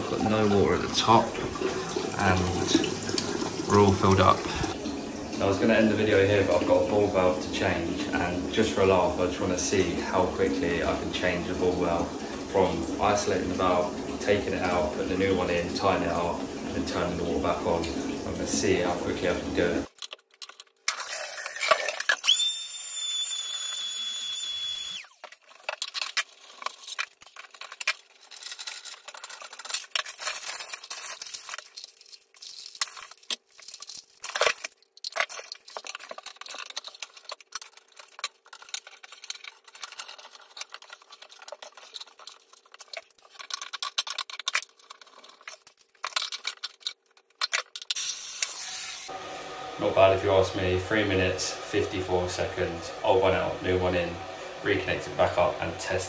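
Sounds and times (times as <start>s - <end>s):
plastic fittings and tools clattering: 19.9s - 22.5s, 25.0s - 48.5s.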